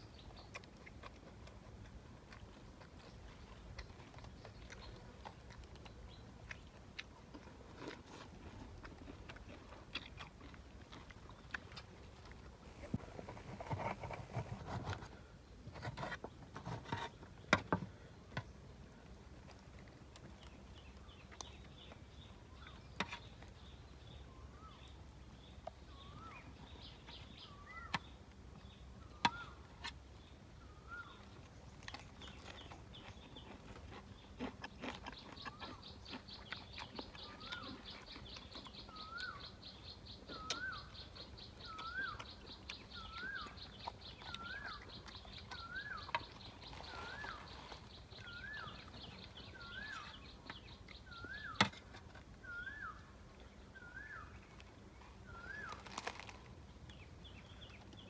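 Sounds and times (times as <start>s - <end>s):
bird whistled call: 52.4s - 53.0s.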